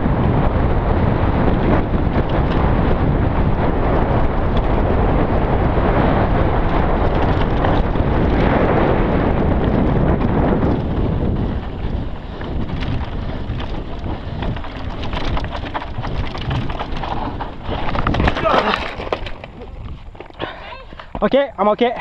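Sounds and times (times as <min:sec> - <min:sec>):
wind buffeting a microphone: 0:00.0 - 0:22.0
tyres rolling over gravel: 0:06.4 - 0:21.4.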